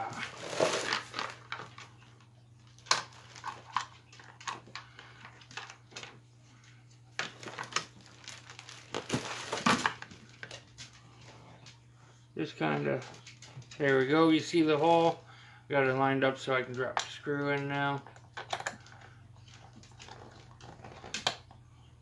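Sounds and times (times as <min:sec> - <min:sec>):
rustling: 0:00.0 - 0:02.0, 0:07.3 - 0:11.7.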